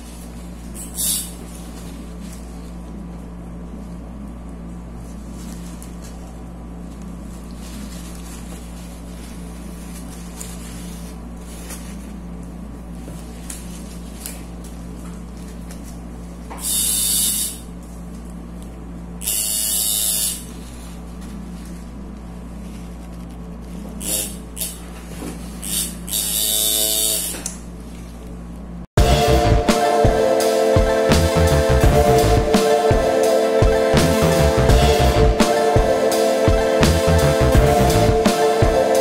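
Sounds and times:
low electrical hum: 0:00.0 - 0:29.7.

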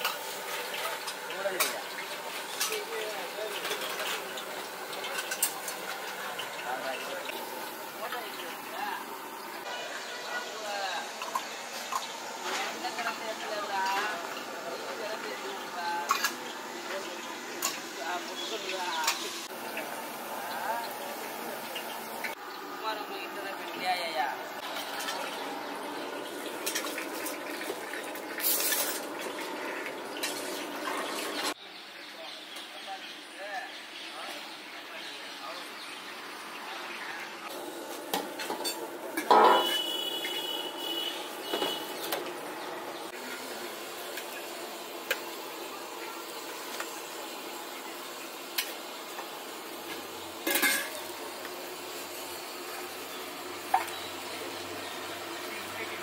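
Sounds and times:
water sizzling on hot griddle: 0:00.0 - 0:56.0
metal spoon clinking on griddle: 0:50.4 - 0:51.0
spoon clatter on pot: 0:50.4 - 0:51.0.

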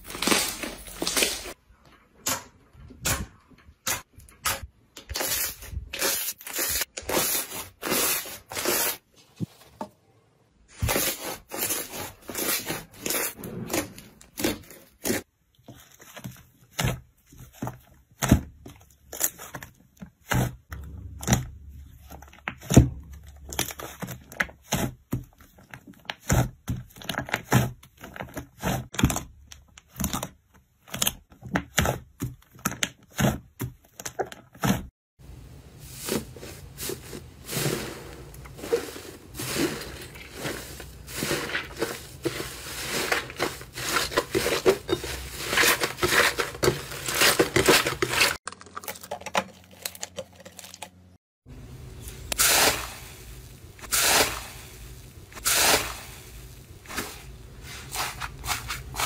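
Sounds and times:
slime squishing and crackling: 0:36.6 - 0:51.2.

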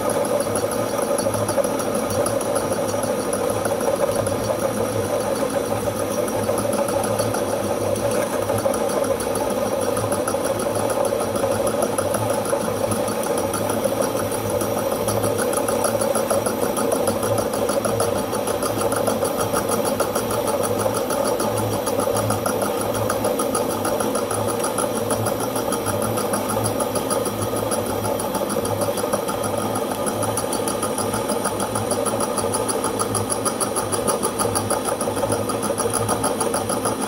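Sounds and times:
metal lathe running: 0:00.0 - 0:37.0.

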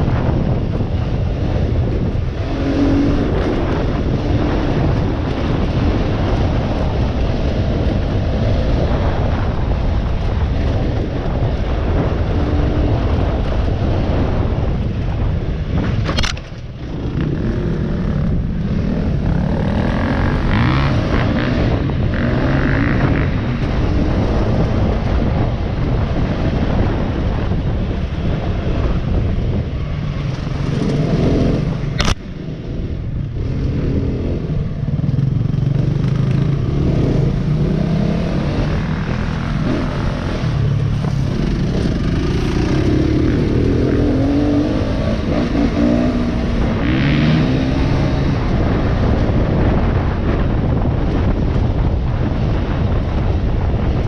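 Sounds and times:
motorbike engine revving: 0:16.2 - 0:24.9, 0:30.4 - 0:50.0.

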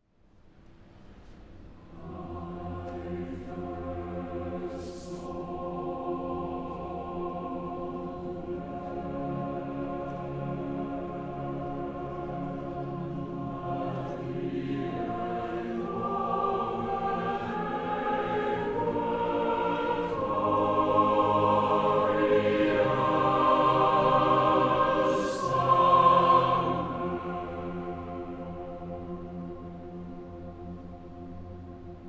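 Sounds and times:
mixed choir singing: 0:01.9 - 0:31.6.

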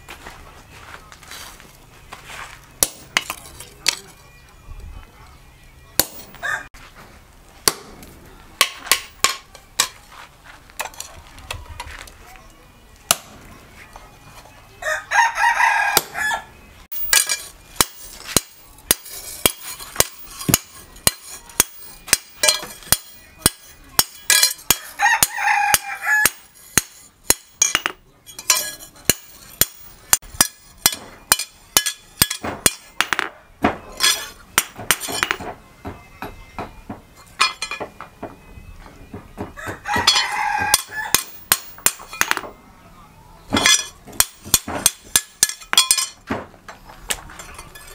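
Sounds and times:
rooster crowing: 0:06.4 - 0:06.7, 0:14.8 - 0:16.5, 0:24.8 - 0:26.4, 0:39.5 - 0:41.2.

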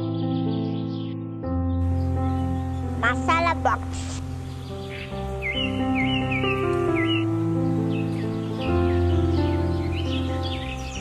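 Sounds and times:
background music: 0:00.0 - 0:11.0
bird chirping: 0:00.0 - 0:11.0.

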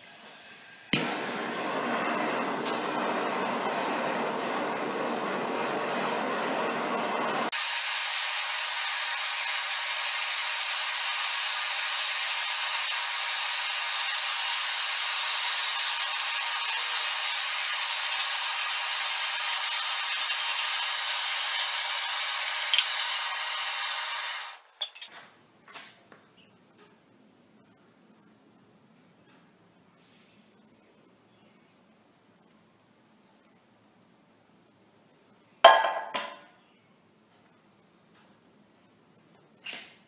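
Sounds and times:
gas torch flame hissing: 0:00.0 - 0:24.6
torch and pan clattering: 0:01.0 - 0:25.1.

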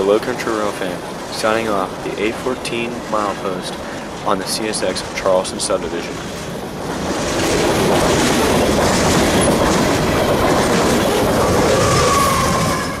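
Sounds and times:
freight train wheels on rails: 0:00.0 - 0:13.0
high-pitched train squeal: 0:11.0 - 0:13.0.

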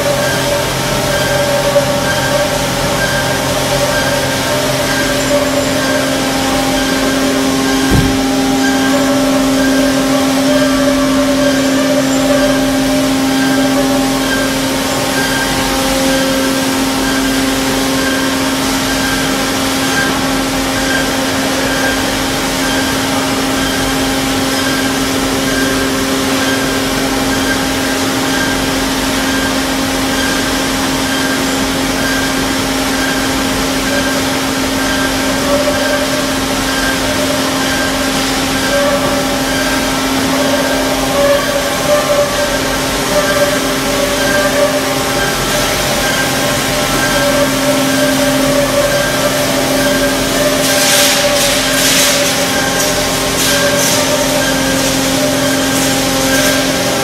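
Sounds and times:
loud motor hum: 0:00.0 - 0:57.0.

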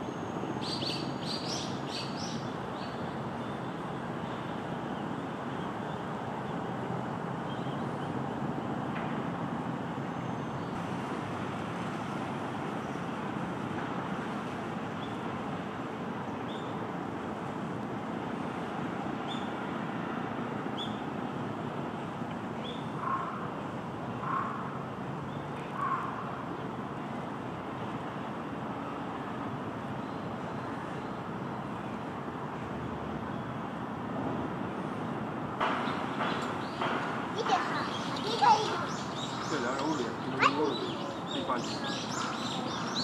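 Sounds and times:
distant road traffic: 0:00.0 - 0:43.0
loud bird call: 0:35.8 - 0:43.0
high bird chirps: 0:37.4 - 0:43.0.

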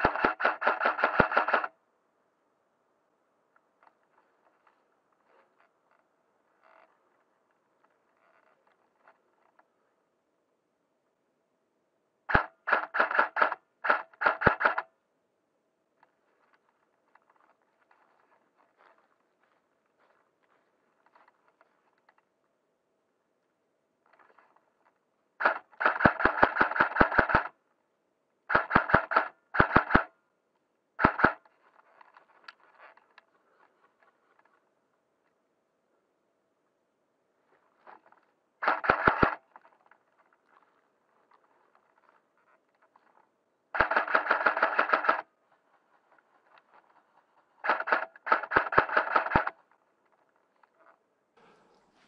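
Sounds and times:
gunshots in rapid bursts: 0:00.0 - 0:01.8, 0:12.3 - 0:14.9, 0:25.4 - 0:27.6, 0:28.5 - 0:30.2, 0:31.0 - 0:31.4, 0:38.6 - 0:39.5, 0:43.7 - 0:45.3, 0:47.6 - 0:49.6.

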